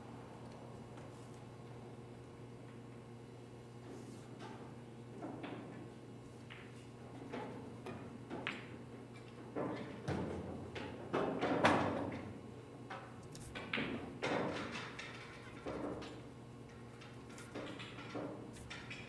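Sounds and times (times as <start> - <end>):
pool balls clacking: 13.6 - 19.0.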